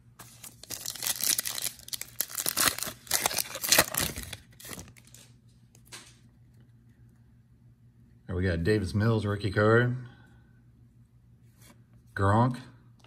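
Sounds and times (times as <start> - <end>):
foil wrapper tearing and crinkling: 0.2 - 5.4.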